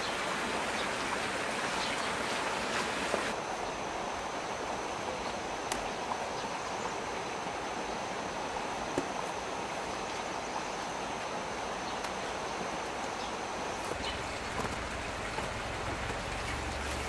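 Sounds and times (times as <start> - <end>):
heavy rain falling: 13.9 - 17.0.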